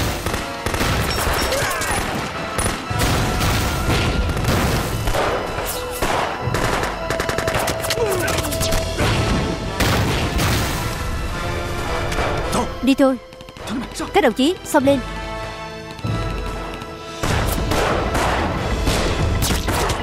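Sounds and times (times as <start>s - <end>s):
gunfire bursts: 0.0s - 7.8s
dramatic background music: 0.0s - 20.0s
explosions: 2.6s - 6.9s, 8.6s - 11.3s.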